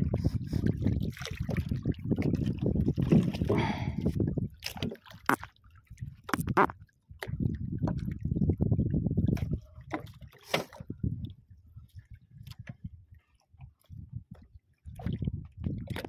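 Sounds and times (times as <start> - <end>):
water lapping against boat hull: 0.0 - 16.0
knocks and clicks: 6.3 - 6.7.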